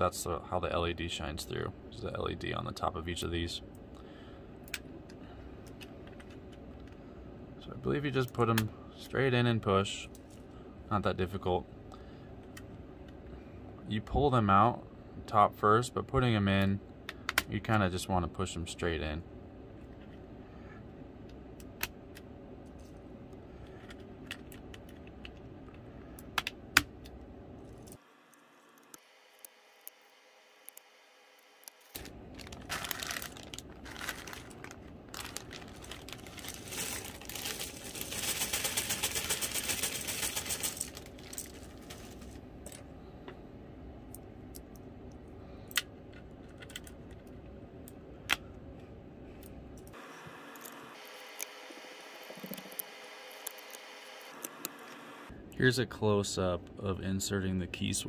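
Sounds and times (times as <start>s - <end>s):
plastic bag rattling rustle: 31.9s - 42.4s.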